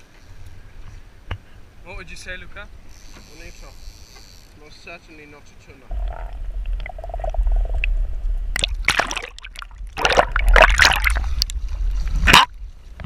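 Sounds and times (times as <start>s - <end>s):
water splashing and sloshing: 5.9s - 12.5s
muffled underwater rumble: 5.9s - 13.0s.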